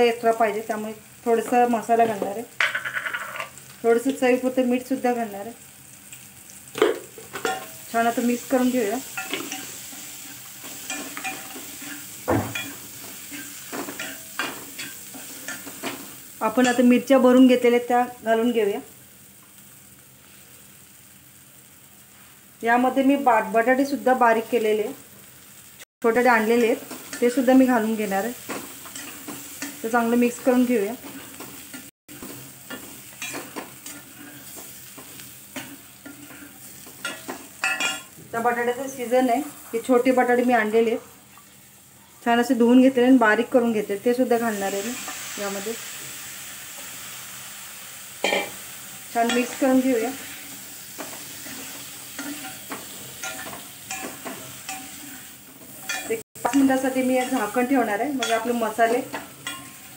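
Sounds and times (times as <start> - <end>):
sizzling in oil: 0.0 - 59.9
metal spatula scraping a pan: 8.8 - 16.8, 30.6 - 38.2, 49.2 - 59.9.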